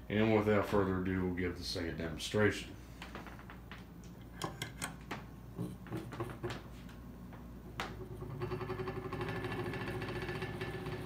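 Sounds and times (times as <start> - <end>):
electric fan motor humming: 0.0 - 11.0
fan bearing rattle: 8.0 - 11.0.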